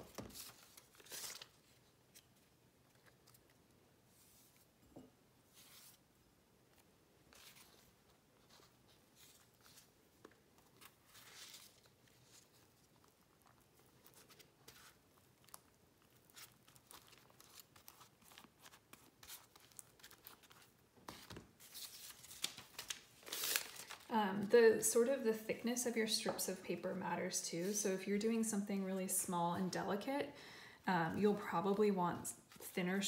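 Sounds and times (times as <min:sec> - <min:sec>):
paper strips rustling and crinkling: 0:00.0 - 0:03.6, 0:06.7 - 0:25.2, 0:31.2 - 0:33.0.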